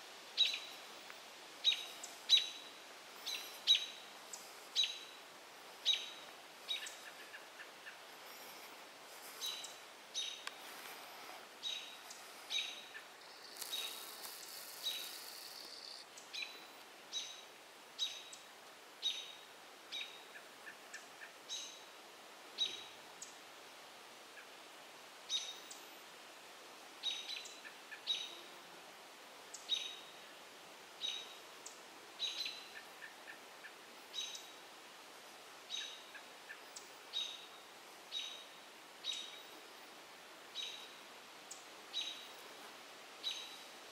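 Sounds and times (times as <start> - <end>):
soft ticks: 10.4 - 10.6.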